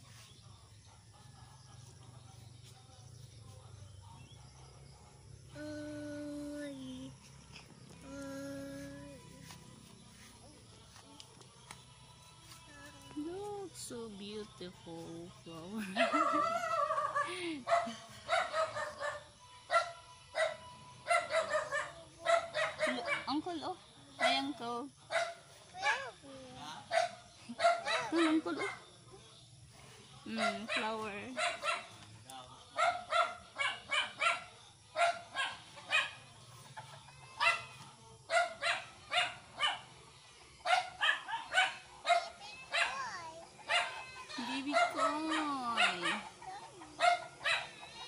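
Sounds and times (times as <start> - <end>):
dog barking: 15.9 - 23.4, 24.2 - 26.2, 26.8 - 28.9, 30.3 - 32.0, 32.7 - 36.3, 37.3 - 40.0, 40.6 - 47.9
dog barking high: 40.7 - 43.1, 43.7 - 44.1.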